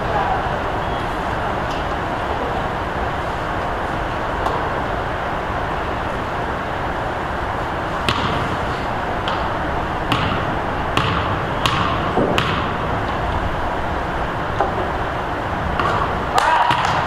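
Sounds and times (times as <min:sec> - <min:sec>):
gym background noise: 0:00.0 - 0:17.0
basketball bouncing on gym floor: 0:08.0 - 0:08.5, 0:10.1 - 0:13.2, 0:15.8 - 0:17.0.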